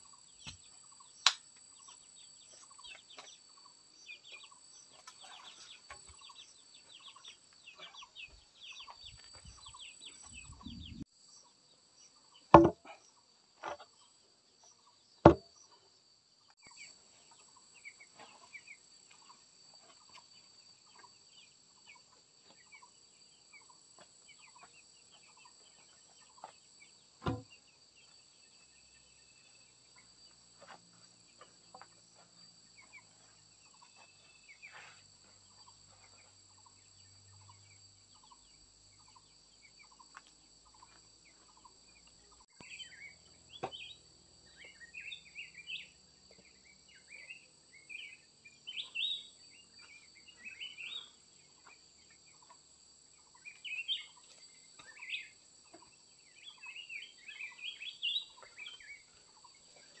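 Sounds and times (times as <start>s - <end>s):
birds chirping: 0.0s - 15.8s, 16.4s - 60.0s
insects droning: 0.0s - 60.0s
single knock: 12.6s - 12.8s, 27.2s - 27.5s.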